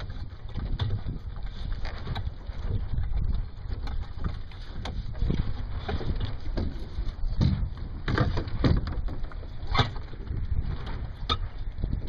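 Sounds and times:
water slapping against hull: 0.0 - 12.0
wind buffeting microphone: 0.0 - 12.0.

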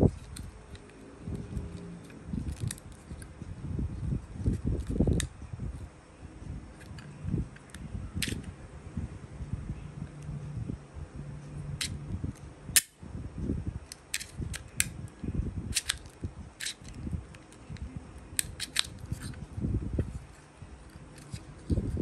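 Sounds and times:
plastic phone clamp clicking: 15.7 - 17.6, 18.4 - 19.4.

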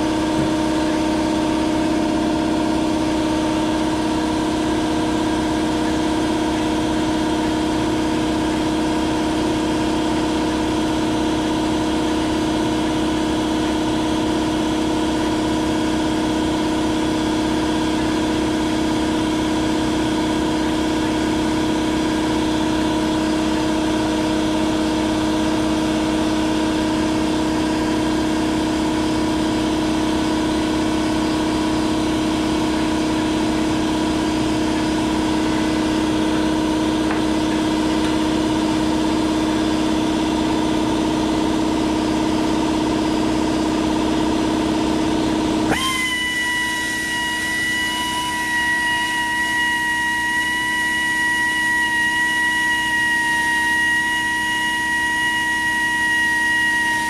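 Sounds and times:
power drill humming: 45.7 - 57.0.

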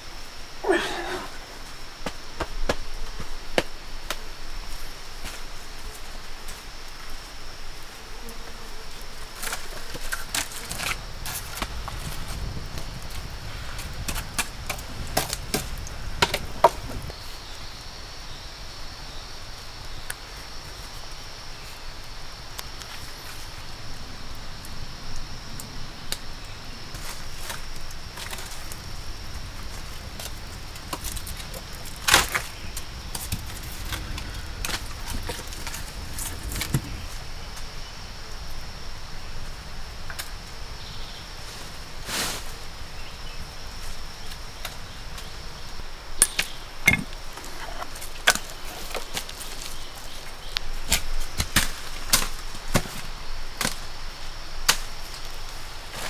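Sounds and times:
forest insects droning: 0.0 - 56.0
sticks and dry fronds rustling: 8.8 - 18.0, 26.1 - 56.0.

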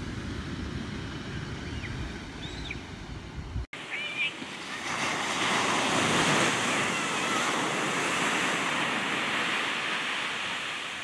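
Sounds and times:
wave breaking on beach: 3.7 - 11.0.

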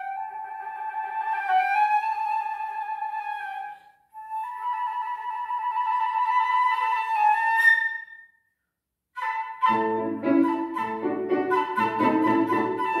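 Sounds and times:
flute playing high notes: 9.2 - 13.0
piano chords: 9.6 - 13.0.

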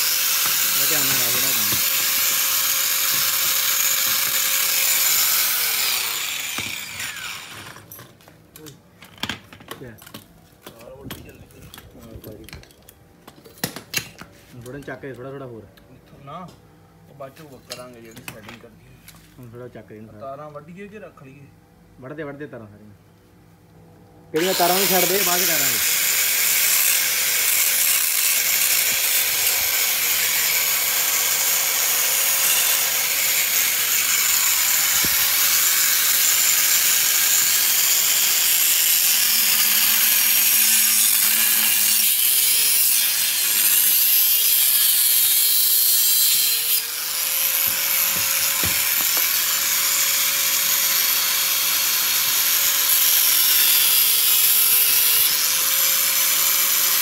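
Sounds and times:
angle grinder cutting metal: 0.0 - 8.0, 24.4 - 57.0.

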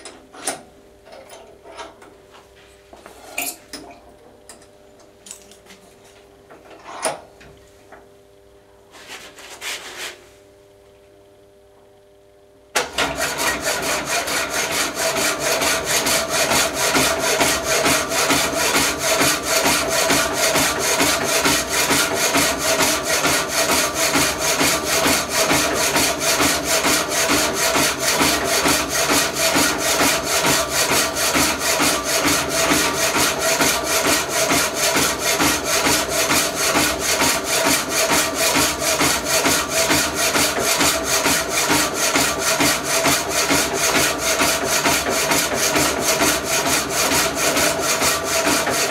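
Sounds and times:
power hacksaw cutting: 12.8 - 48.9.

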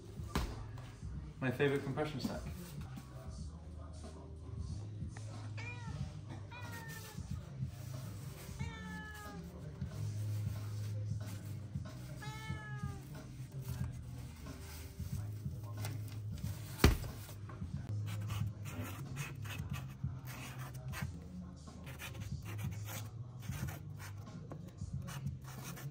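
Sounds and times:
cat meowing: 8.4 - 9.4, 12.1 - 13.2
marker scratching on fabric: 18.0 - 21.1, 21.8 - 24.2, 25.0 - 25.9.

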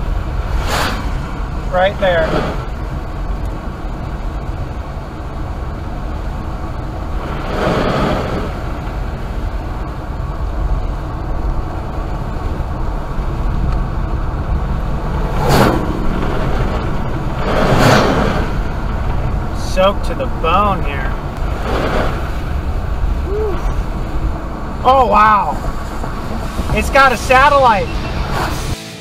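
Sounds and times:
vehicle whooshing past: 0.0 - 3.2, 7.0 - 9.5, 13.4 - 19.6, 20.3 - 29.0
rain on car body: 0.0 - 28.3
tyre and road noise: 0.0 - 29.0.

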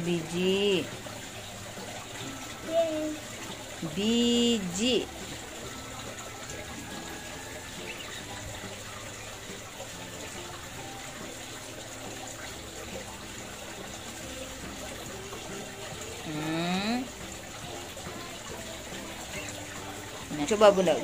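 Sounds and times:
water trickling and splashing: 0.0 - 21.0.

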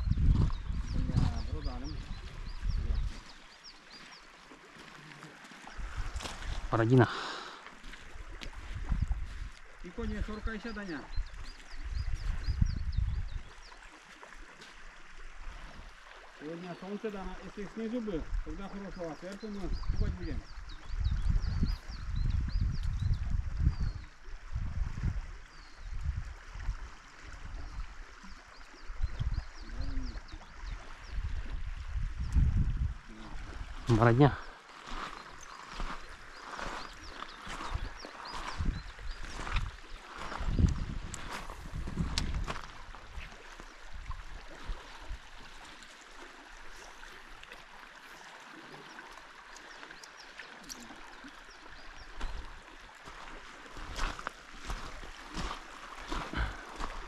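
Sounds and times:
river water rushing and gurgling: 0.0 - 57.0
river water rushing: 42.6 - 57.0.

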